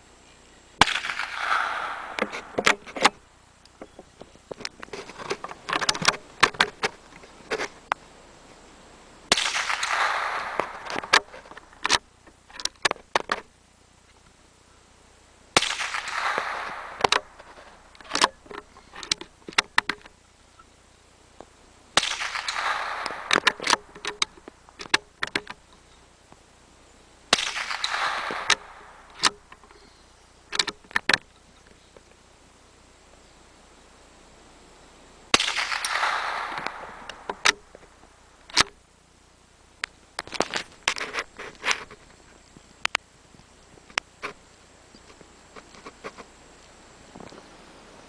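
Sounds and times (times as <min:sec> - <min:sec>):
rifle shots: 0:00.8 - 0:02.8, 0:09.3 - 0:11.4, 0:15.6 - 0:17.8, 0:22.0 - 0:24.0, 0:27.3 - 0:29.3, 0:35.3 - 0:37.5.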